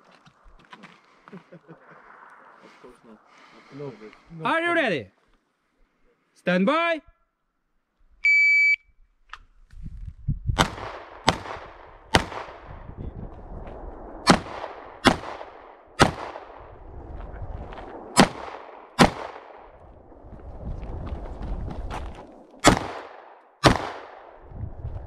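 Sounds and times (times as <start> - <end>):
pistol shots: 10.6 - 12.6, 14.2 - 16.6, 18.2 - 19.7, 22.6 - 24.4.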